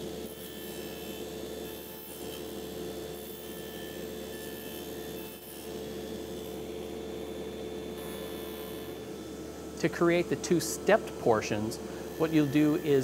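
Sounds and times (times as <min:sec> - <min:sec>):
table saw motor hum: 0:00.0 - 0:13.0
saw blade cutting wood: 0:12.0 - 0:13.0.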